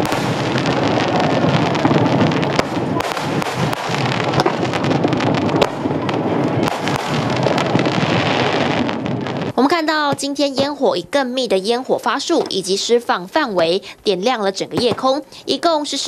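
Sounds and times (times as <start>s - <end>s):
rumble of fireworks shells bursting: 0.0s - 10.9s
fireworks bangs and crackles: 0.0s - 13.8s, 14.5s - 16.0s.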